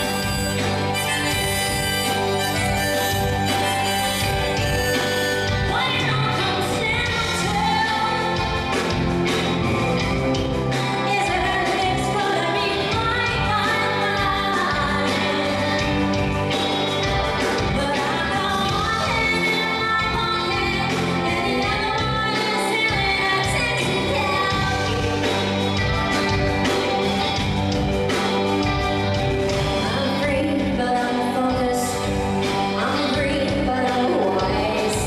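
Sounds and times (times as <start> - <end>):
woman singing lead vocals: 0.0 - 9.1, 10.9 - 16.6, 17.5 - 25.4, 29.8 - 35.0
pop-rock band playing: 0.0 - 35.0.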